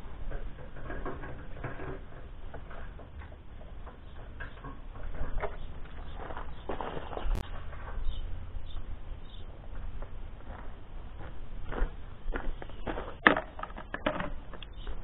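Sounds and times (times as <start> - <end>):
low steady rumble: 0.0 - 15.0
handling noises: 0.1 - 8.2
footsteps on gravelly grass: 5.8 - 8.2, 9.6 - 13.2.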